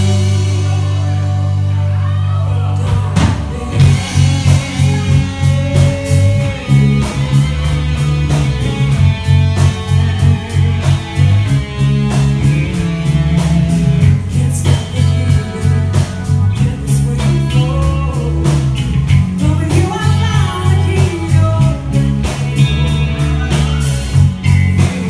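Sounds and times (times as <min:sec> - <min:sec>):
drum kit beat: 0:00.0 - 0:25.0
electric guitars: 0:00.0 - 0:25.0
keyboard: 0:00.0 - 0:25.0
woman singing: 0:02.0 - 0:06.6, 0:14.3 - 0:18.7, 0:19.4 - 0:24.1.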